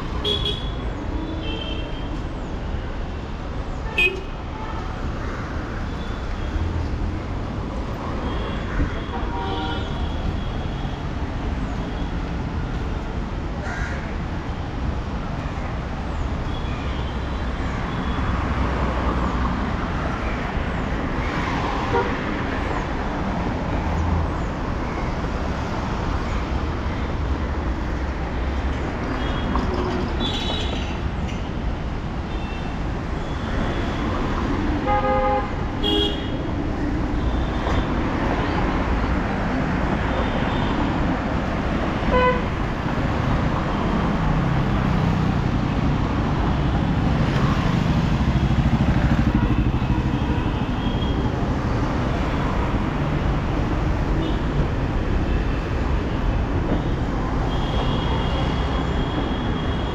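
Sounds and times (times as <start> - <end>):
road traffic: 0.0 - 59.9
vehicle horns tooting: 34.8 - 36.4, 42.1 - 42.6.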